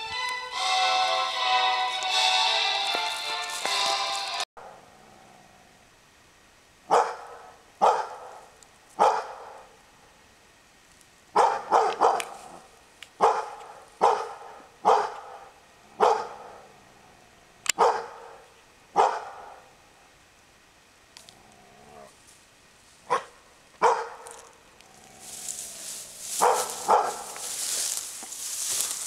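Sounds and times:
dog barking: 6.9 - 9.7, 11.4 - 12.6, 13.2 - 16.6, 17.8 - 19.7, 23.1 - 24.4, 26.3 - 27.6.

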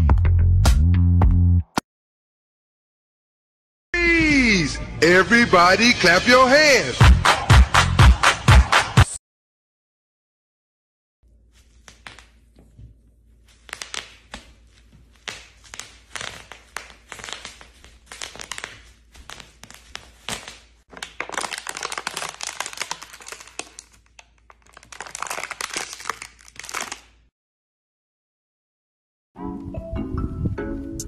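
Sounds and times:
bubble wrap popping: 13.3 - 27.3.

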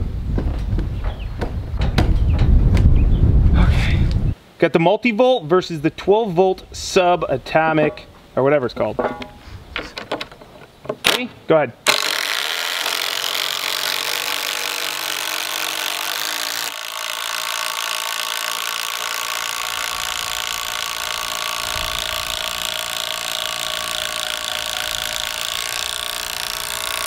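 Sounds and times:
impact drivers hammering screws: 11.9 - 27.0.

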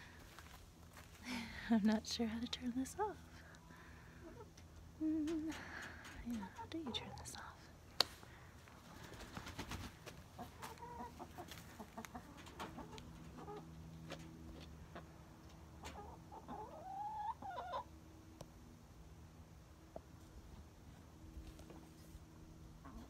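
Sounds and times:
hens clucking: 4.0 - 7.4, 8.7 - 17.9, 22.8 - 23.0.

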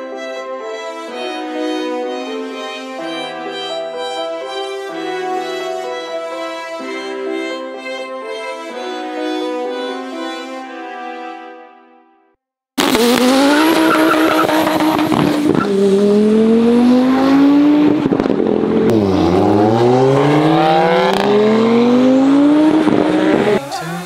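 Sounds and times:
car engine accelerating: 12.8 - 24.0.

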